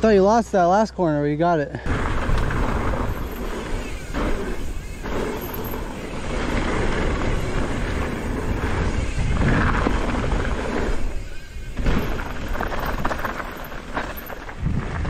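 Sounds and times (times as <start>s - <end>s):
mountain bike rolling rumble: 0.0s - 15.0s
wind on microphone: 1.9s - 13.3s, 14.5s - 15.0s.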